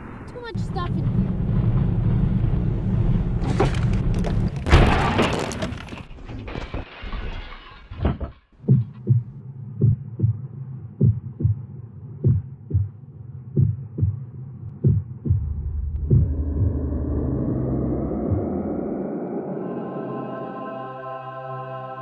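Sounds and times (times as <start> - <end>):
car crash clatter: 1.3 - 8.5
heartbeat thumps: 8.6 - 18.8
steady low hum: 14.8 - 21.4.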